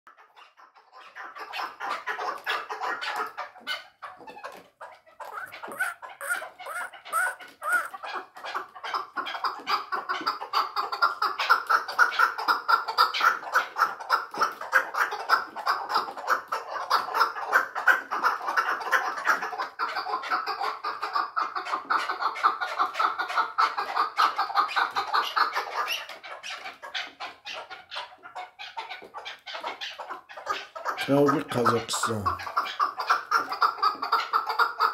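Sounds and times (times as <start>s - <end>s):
partridge clucking: 5.2s - 8.2s.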